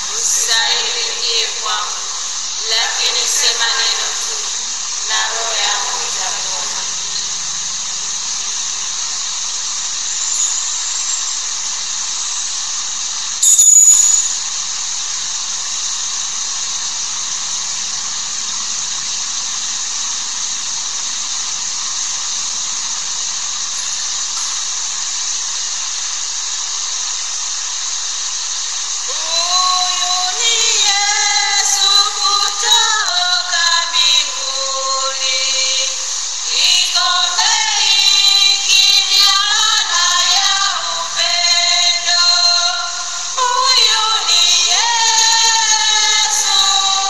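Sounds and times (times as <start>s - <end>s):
singing voices: 0.0s - 7.7s, 29.0s - 47.0s
steady background hiss: 0.0s - 47.0s.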